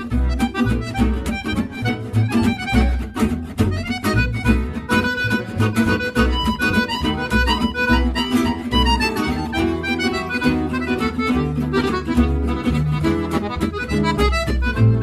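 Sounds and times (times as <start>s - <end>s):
instrumental melody of held notes: 0.0s - 15.0s.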